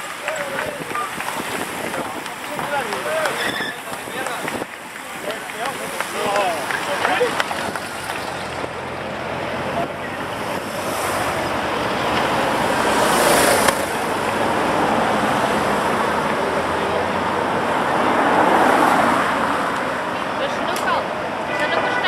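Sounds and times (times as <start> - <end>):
wind on microphone: 0.0 - 5.0
cars and motorcycles passing: 0.0 - 22.0.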